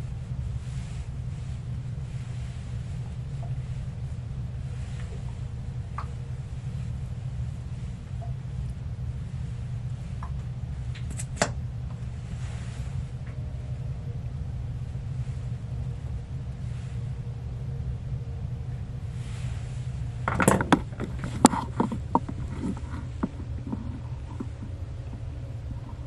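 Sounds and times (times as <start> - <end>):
steady low hum: 0.0 - 26.0
small knocks and clatters: 20.2 - 25.2.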